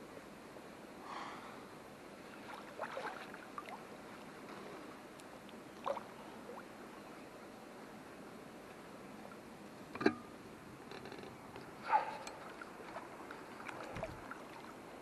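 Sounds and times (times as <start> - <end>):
feet splashing in water: 2.4 - 3.8, 12.0 - 14.8.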